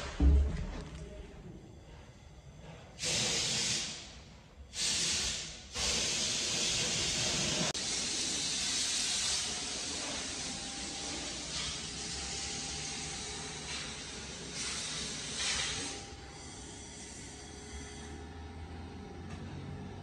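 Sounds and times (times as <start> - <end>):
loud steady hiss: 3.0 - 17.3.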